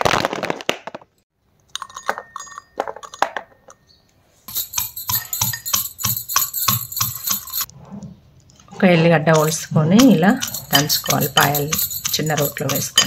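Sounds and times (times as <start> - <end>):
knocks and clinks: 1.7 - 7.7, 9.3 - 13.0
pestle pounding in mortar: 4.5 - 7.7, 9.4 - 13.0.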